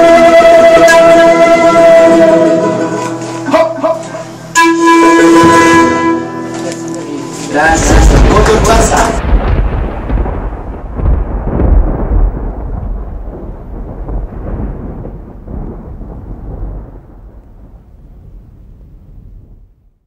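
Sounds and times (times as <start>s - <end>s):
low rumbling noise: 7.6s - 20.0s.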